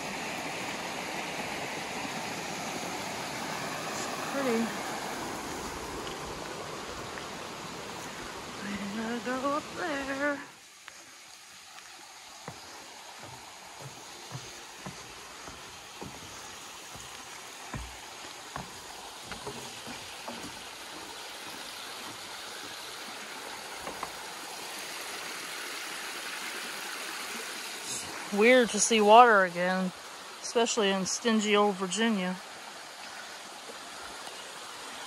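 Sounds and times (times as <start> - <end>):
rocky creek running: 0.0 - 35.0
footsteps on wooden footbridge: 11.6 - 23.0, 23.7 - 24.2.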